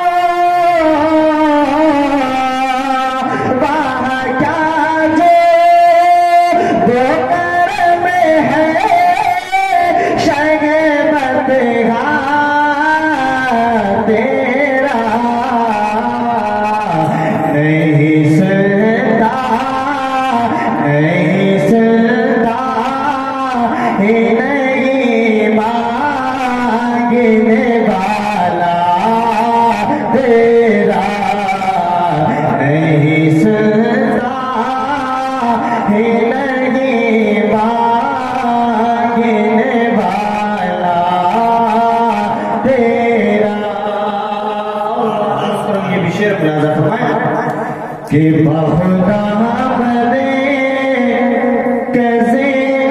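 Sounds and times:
man singing into a microphone: 0.0 - 52.9.

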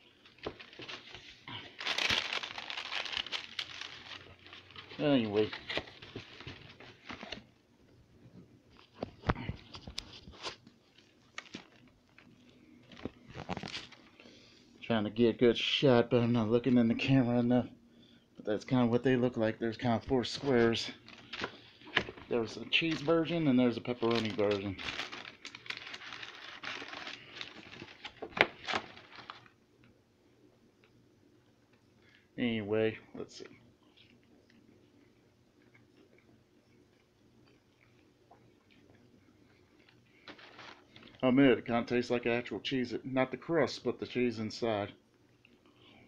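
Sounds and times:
paper packaging rustling: 0.0 - 7.5, 8.8 - 14.2, 20.2 - 29.6, 40.2 - 41.3.

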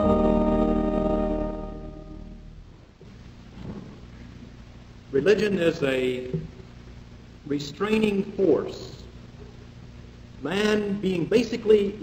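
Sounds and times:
organ chord: 0.0 - 2.9.

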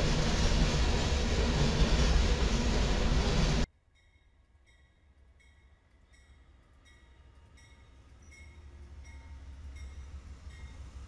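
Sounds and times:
diesel locomotives rumbling: 0.0 - 3.7, 4.6 - 11.0
locomotive bell ringing: 4.0 - 11.0.

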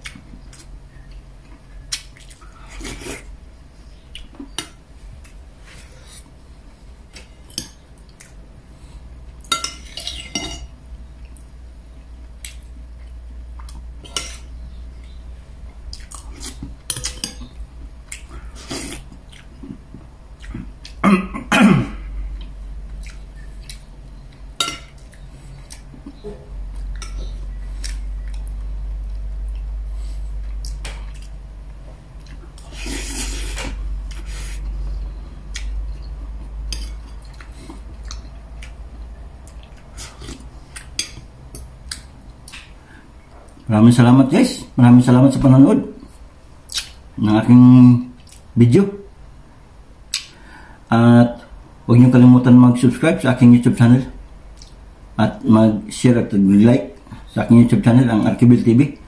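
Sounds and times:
chewing: 0.0 - 3.3, 22.4 - 29.7, 30.4 - 42.7
cutlery clinking on dishes: 9.5 - 10.7.

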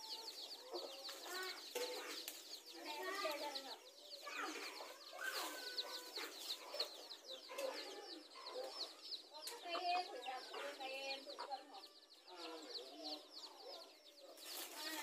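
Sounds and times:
chicks peeping: 0.0 - 15.0
hen clucking: 4.3 - 12.8.

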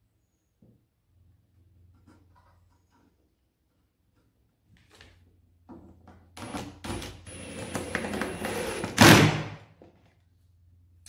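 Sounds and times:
cordless drill whining: 6.4 - 9.2.

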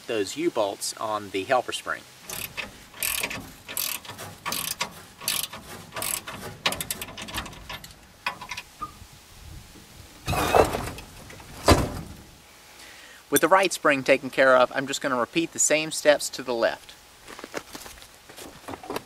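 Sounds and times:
metal clank: 2.2 - 9.0, 10.3 - 12.2
socket ratchet clicking: 2.3 - 8.7.

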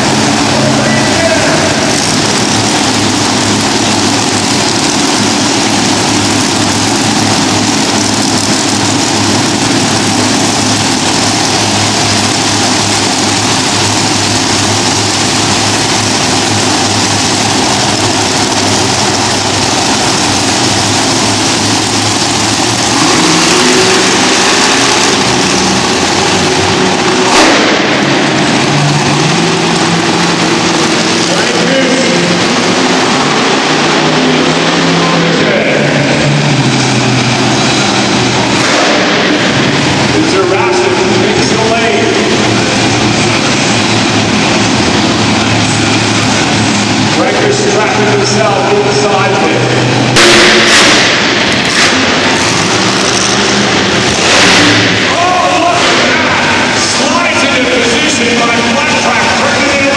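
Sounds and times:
engine revving: 0.0 - 59.9
monster truck engines running: 0.0 - 59.9
sharp bang: 27.2 - 28.6, 50.1 - 52.4.

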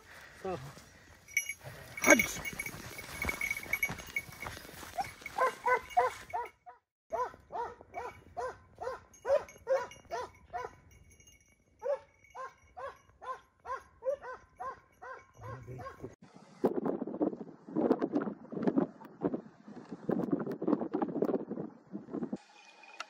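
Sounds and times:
dog barking: 5.0 - 10.8, 11.8 - 16.2.

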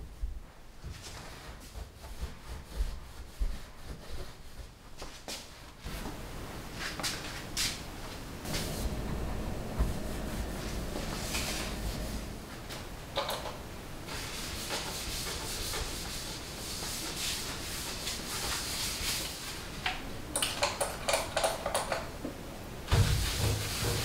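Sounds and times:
paper towel rubbing on metal: 8.5 - 12.7, 14.1 - 19.6, 22.9 - 24.0.

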